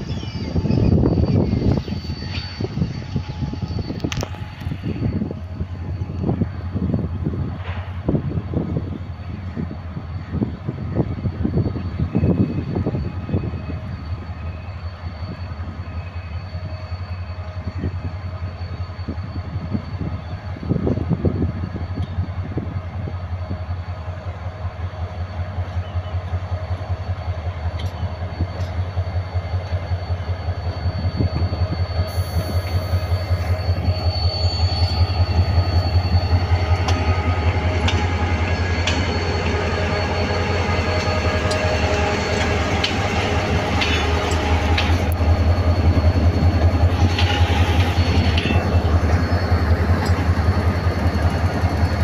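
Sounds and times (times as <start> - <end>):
diesel locomotive engine rumble: 0.0 - 52.0
train wheels clicking over rail joints: 27.7 - 29.0, 34.6 - 52.0.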